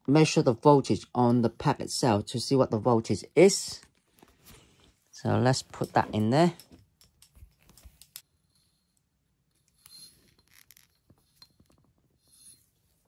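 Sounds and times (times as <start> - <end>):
test probes clicking and scraping: 5.7 - 8.3, 9.5 - 12.6.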